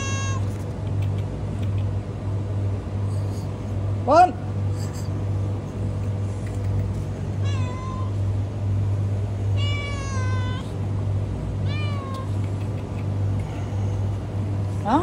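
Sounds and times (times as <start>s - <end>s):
cat meowing: 0.0s - 0.5s, 7.4s - 8.2s, 9.6s - 10.8s, 11.6s - 12.4s
steady low hum: 0.0s - 15.0s.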